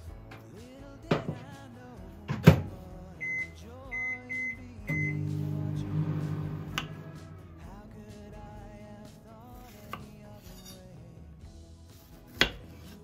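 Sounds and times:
soft background music: 0.0 - 13.0
short button beeps: 3.2 - 7.2
microwave oven humming: 4.4 - 7.6.

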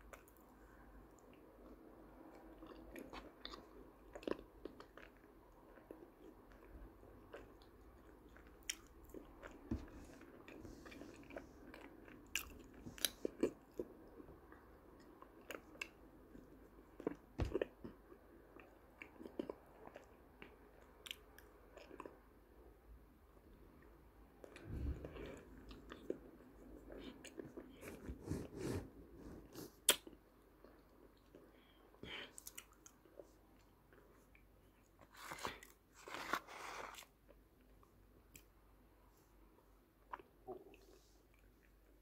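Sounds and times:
person chewing crunchy clay: 2.4 - 14.1.

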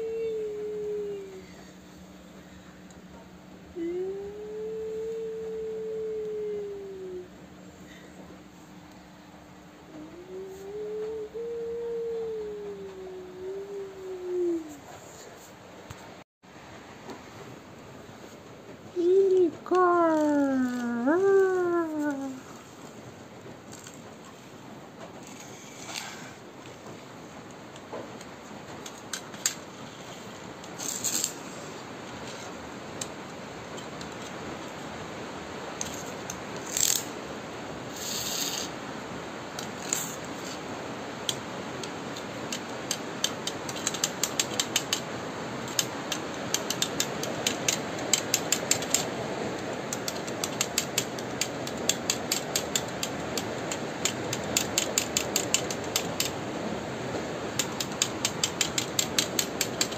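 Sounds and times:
toy car motor clicking and whirring: 30.8 - 31.6, 36.6 - 37.1, 37.9 - 38.7, 45.7 - 49.1, 57.6 - 59.9.

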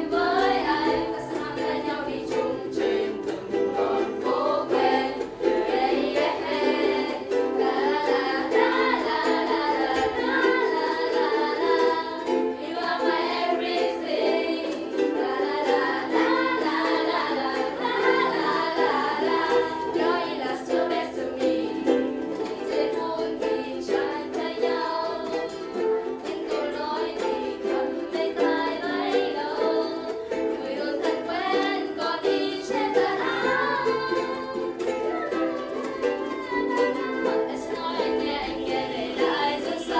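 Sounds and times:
ukuleles strumming: 0.0 - 39.9.

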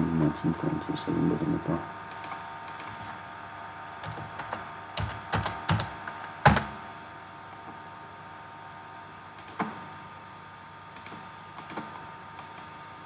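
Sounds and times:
keyboard keystrokes: 9.4 - 9.7, 11.0 - 12.7.

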